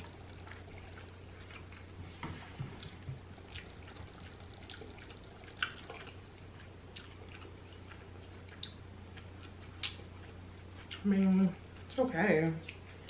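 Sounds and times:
low steady hum: 0.0s - 13.0s
lip smacks and tongue clicks: 2.8s - 6.2s, 6.9s - 10.0s.

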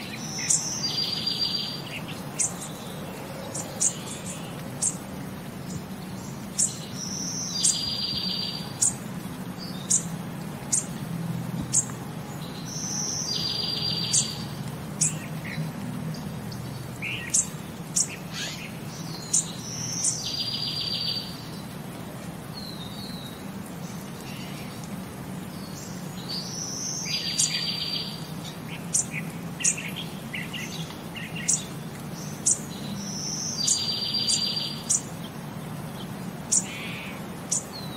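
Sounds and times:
birds chirping: 0.0s - 37.9s.

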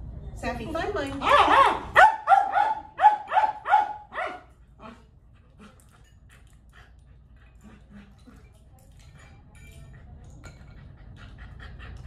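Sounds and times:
dog barking: 1.2s - 4.5s.

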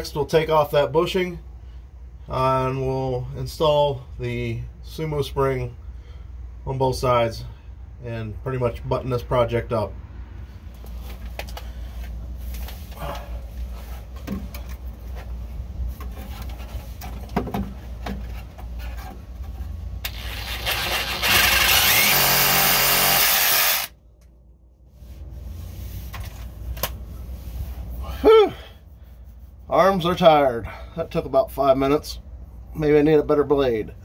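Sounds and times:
cordless power saw cutting: 20.0s - 23.9s.

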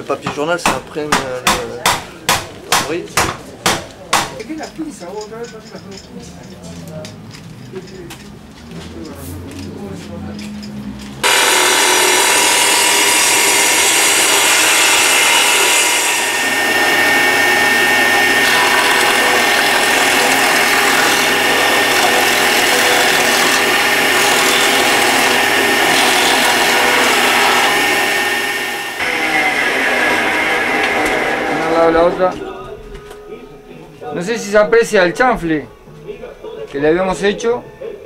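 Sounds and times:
jointer planing wood: 11.2s - 32.4s.

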